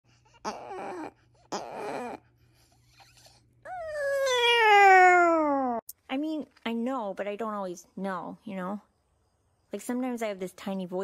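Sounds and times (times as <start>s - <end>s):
small dog yowling and howling: 3.6s - 5.8s.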